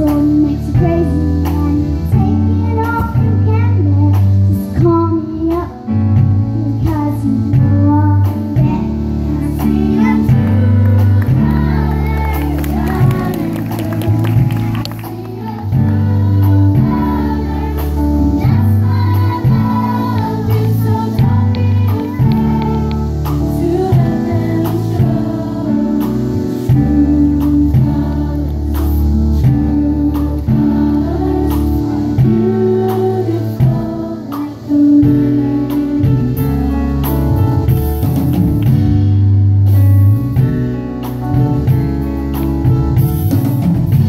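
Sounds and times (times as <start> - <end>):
low bass notes: 0.0 - 44.0
choir singing: 9.3 - 35.1
drum hits: 9.6 - 25.4.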